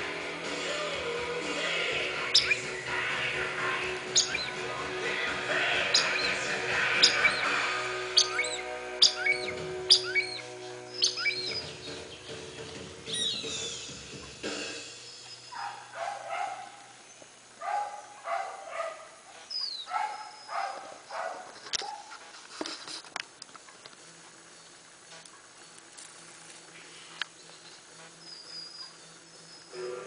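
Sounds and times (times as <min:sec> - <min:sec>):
birds chirping: 0:00.0 - 0:22.3, 0:23.4 - 0:30.0
short lower bird calls: 0:02.2 - 0:02.9, 0:04.1 - 0:04.6, 0:05.8 - 0:11.9, 0:13.1 - 0:13.9.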